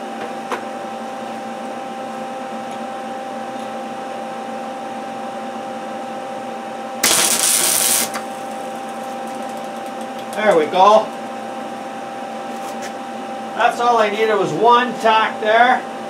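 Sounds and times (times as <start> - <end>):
welder humming with fan: 0.0 - 16.0
crackling arc hiss: 7.0 - 10.6.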